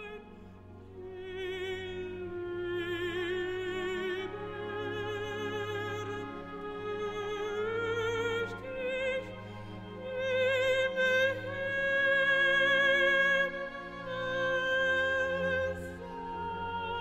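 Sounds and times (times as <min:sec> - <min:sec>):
operatic singing with vibrato: 0:00.0 - 0:17.0.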